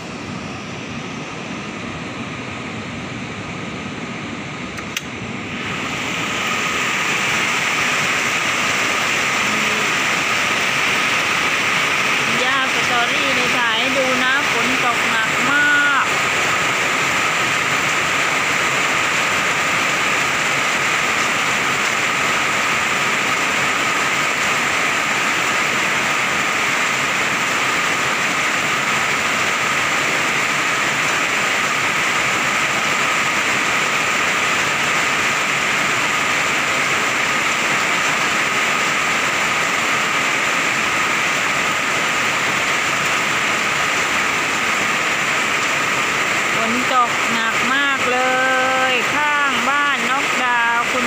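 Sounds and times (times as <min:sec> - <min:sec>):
heavy rain pouring: 0:05.0 - 0:51.0.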